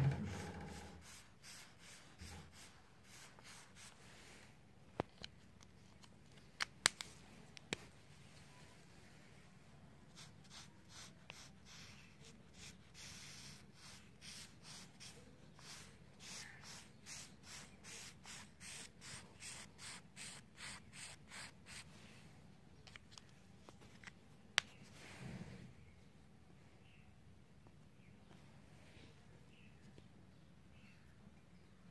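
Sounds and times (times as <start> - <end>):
highlighter scratching on paper: 0.5 - 4.0, 10.1 - 21.9.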